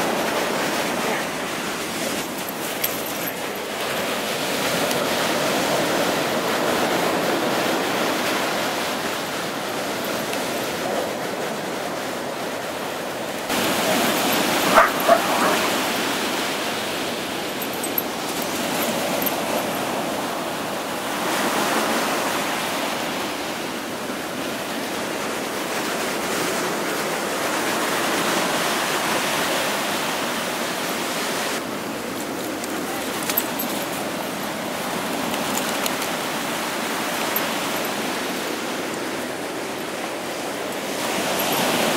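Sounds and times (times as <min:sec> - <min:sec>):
dog barking: 0:13.7 - 0:16.2.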